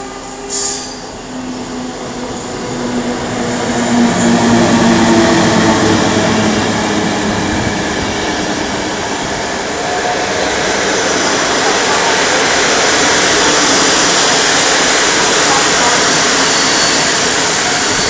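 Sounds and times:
low hum of locomotive: 0:00.0 - 0:18.0
train wheels on rails: 0:00.0 - 0:18.0.

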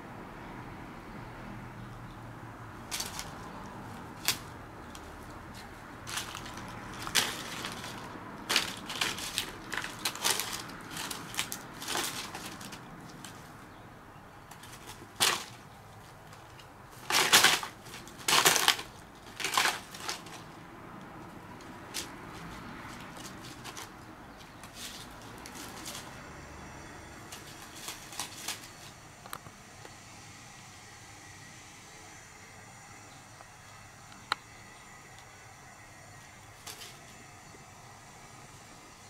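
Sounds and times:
dry leaves crackling and rustling: 0:02.8 - 0:13.8, 0:14.4 - 0:29.4, 0:36.5 - 0:37.3.

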